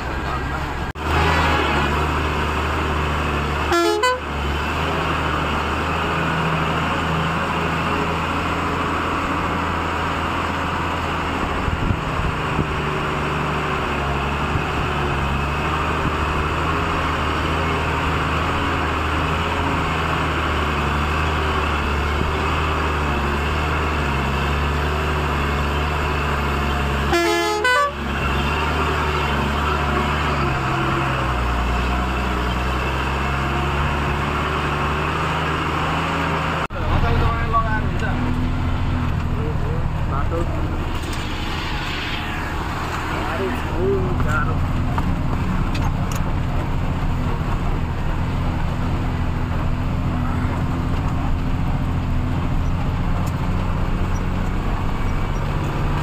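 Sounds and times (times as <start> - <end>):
truck engine running: 0.0 - 56.0
truck horn toots: 1.0 - 2.1, 3.5 - 4.4, 26.9 - 30.1.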